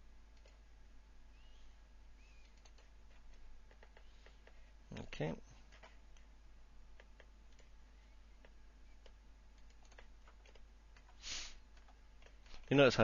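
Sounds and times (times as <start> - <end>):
mouse and keyboard clicks: 2.4 - 4.6, 7.0 - 7.8, 8.4 - 11.2
short hiss: 11.1 - 11.6.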